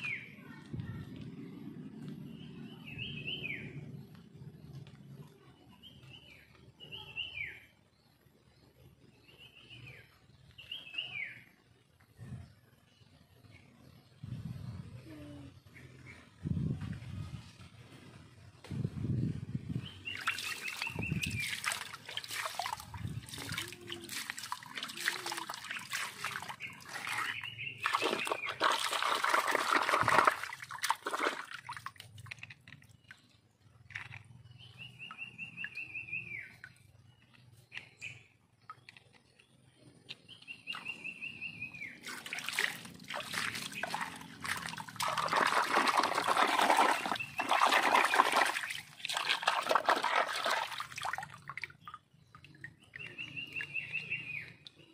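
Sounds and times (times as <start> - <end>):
water splashing and sloshing: 19.8 - 37.6, 38.5 - 54.9
water trickling: 20.0 - 34.1, 42.0 - 54.9.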